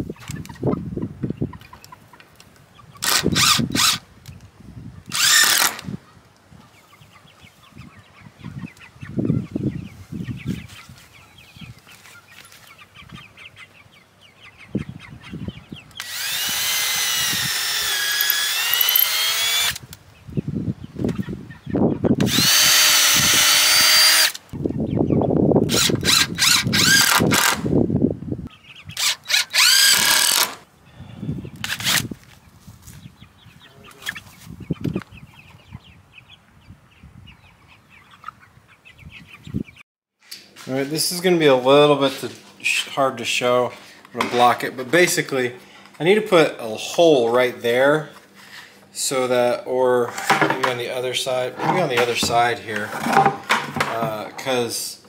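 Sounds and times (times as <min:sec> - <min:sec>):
cordless drill whining into wood: 0:03.0 - 0:04.0, 0:05.1 - 0:05.9, 0:16.0 - 0:19.8, 0:22.2 - 0:24.4, 0:25.7 - 0:27.6, 0:29.0 - 0:30.6.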